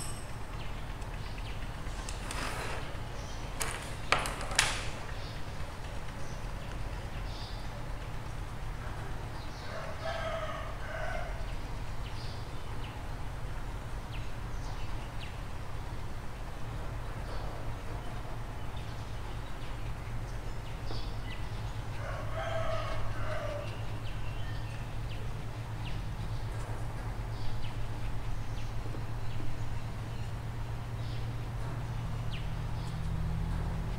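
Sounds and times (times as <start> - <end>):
rooster crowing: 9.6 - 11.4, 22.0 - 23.7.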